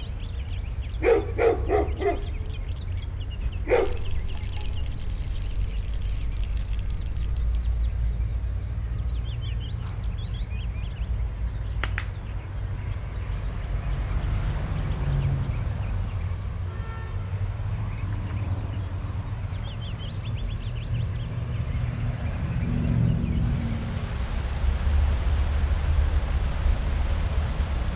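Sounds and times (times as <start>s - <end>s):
small birds chirping: 0.0s - 16.5s
sharp click: 11.8s - 12.2s
low rumble: 23.2s - 27.9s.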